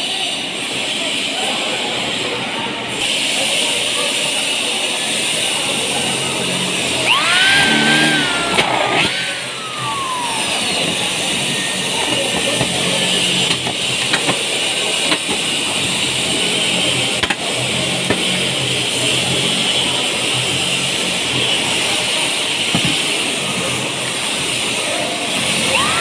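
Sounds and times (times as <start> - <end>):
electric drill motor whine: 6.9 - 13.4, 25.5 - 26.0.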